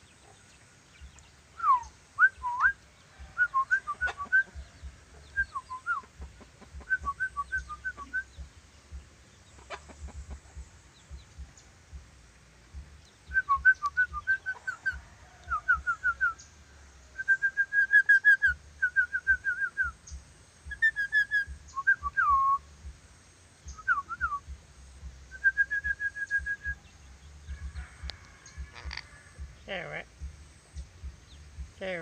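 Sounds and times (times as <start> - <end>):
lorikeet whistling: 6.8 - 8.4, 13.2 - 16.5, 17.2 - 22.7, 25.3 - 26.9.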